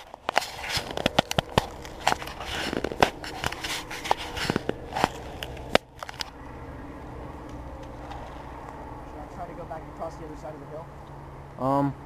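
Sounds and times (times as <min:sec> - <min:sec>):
clothing rustling: 0:00.0 - 0:06.4.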